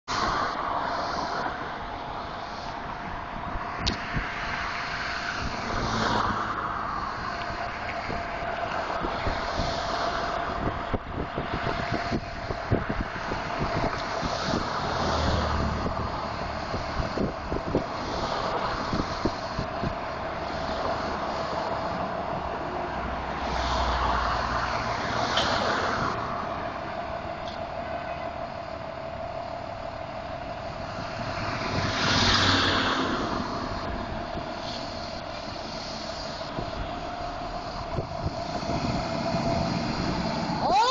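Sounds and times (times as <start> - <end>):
diesel truck engine rumbling: 0.0 - 40.9
wind buffeting microphone: 0.1 - 27.4, 29.9 - 40.9
steady high tone: 25.9 - 40.9.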